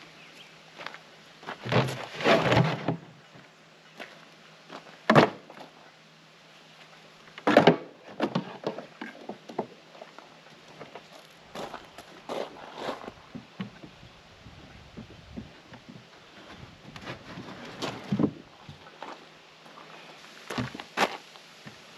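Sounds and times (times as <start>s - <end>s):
footsteps crunching on gravel: 10.9s - 13.3s, 18.8s - 21.3s.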